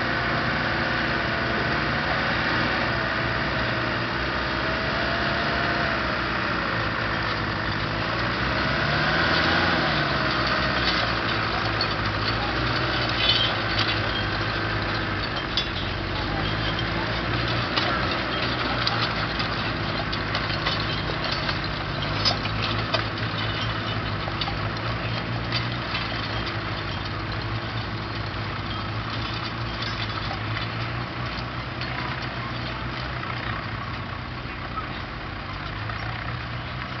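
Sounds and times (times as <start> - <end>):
engine running under load: 0.0 - 37.0
clicks and clanks: 6.8 - 34.1.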